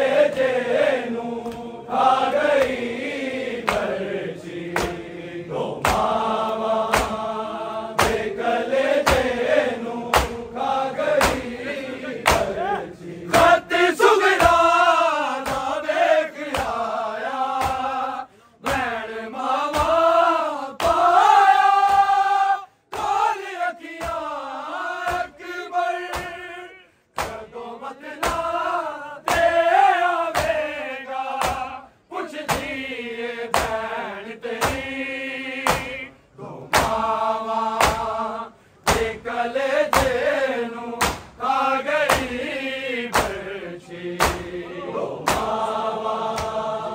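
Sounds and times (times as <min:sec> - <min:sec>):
men chanting in chorus: 0:00.0 - 0:46.9
sharp rhythmic thumps: 0:01.4 - 0:31.8, 0:32.4 - 0:36.1, 0:36.7 - 0:43.6, 0:44.2 - 0:44.6, 0:45.2 - 0:46.7.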